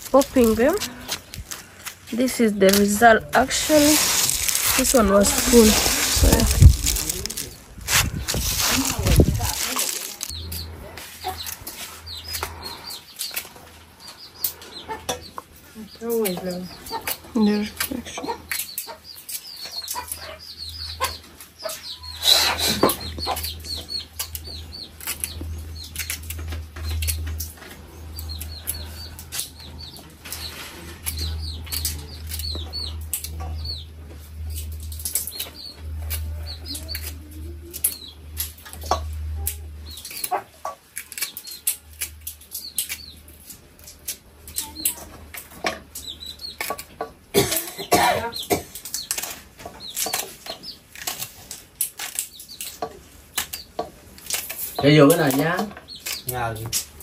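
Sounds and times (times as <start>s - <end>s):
rustling: 0.0s - 12.7s
chicks cheeping: 2.4s - 57.0s.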